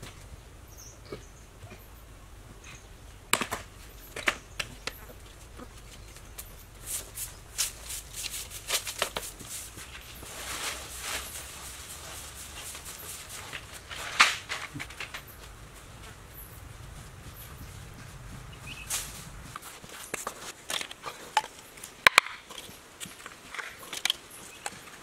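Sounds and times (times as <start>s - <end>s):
scrapes and taps on concrete: 7.6s - 9.9s.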